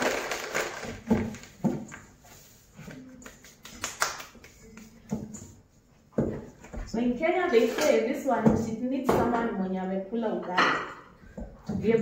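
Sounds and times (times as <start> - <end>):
paper packet rustling: 0.0 - 1.6
dough kneading thumps in metal bowl: 8.3 - 9.5, 11.2 - 12.0.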